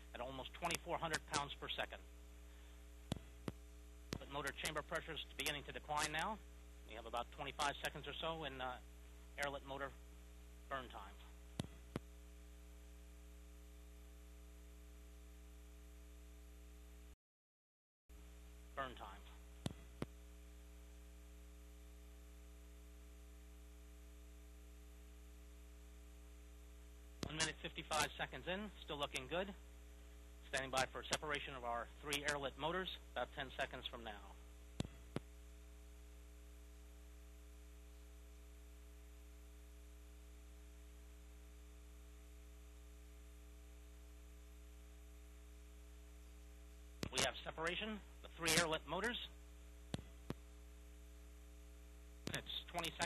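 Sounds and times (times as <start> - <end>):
electrical hum: 0.0 - 17.2, 18.2 - 53.0.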